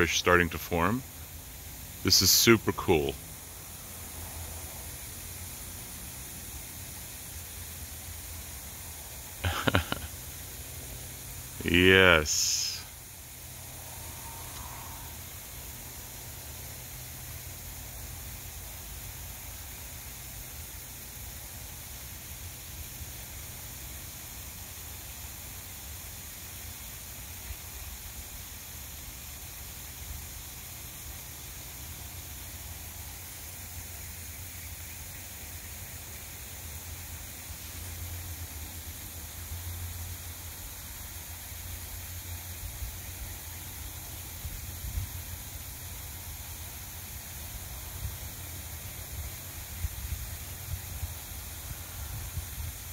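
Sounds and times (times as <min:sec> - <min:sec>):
steady background hiss: 0:00.0 - 0:52.9.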